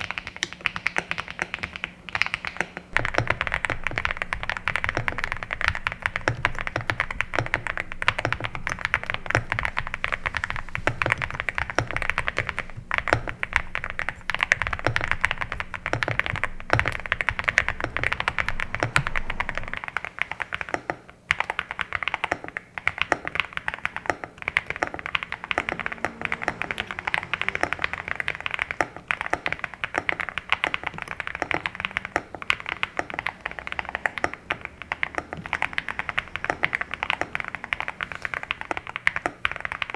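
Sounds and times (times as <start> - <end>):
mechanical keyboard typing: 0.0 - 39.9.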